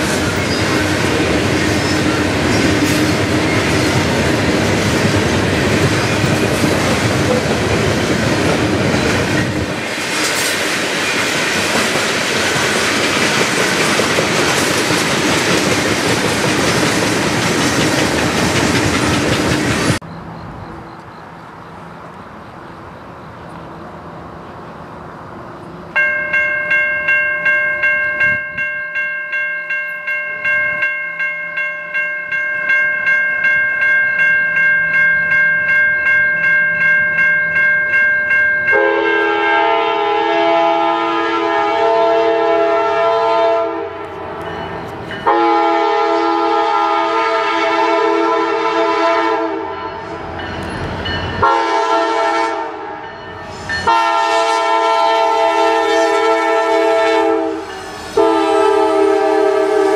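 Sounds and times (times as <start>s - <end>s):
train wheels clattering: 0.0s - 20.0s
crossing warning bell ringing: 25.9s - 40.8s, 44.0s - 46.2s, 48.4s - 59.9s.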